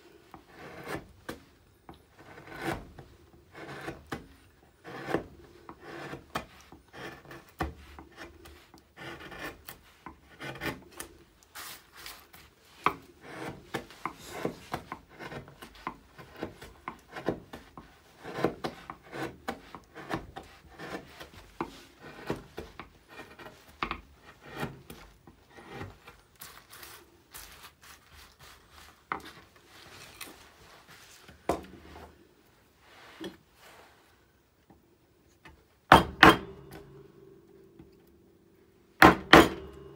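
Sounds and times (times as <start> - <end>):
carving tool cutting wood: 0.4 - 1.2, 2.1 - 12.2, 12.8 - 27.0.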